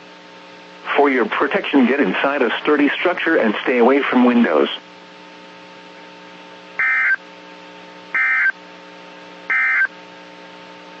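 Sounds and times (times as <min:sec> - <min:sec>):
steady low radio hum: 0:00.0 - 0:11.0
warbling digital data tones: 0:06.8 - 0:07.2, 0:08.2 - 0:08.5, 0:09.5 - 0:09.9.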